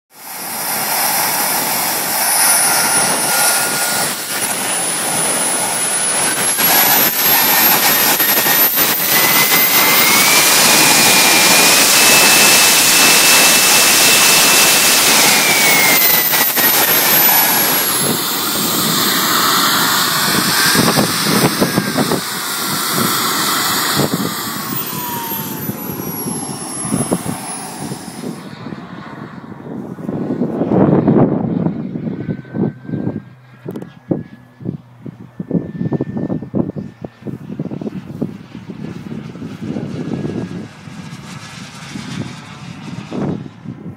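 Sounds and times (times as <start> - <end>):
jet turbine whine: 0.1 - 43.9.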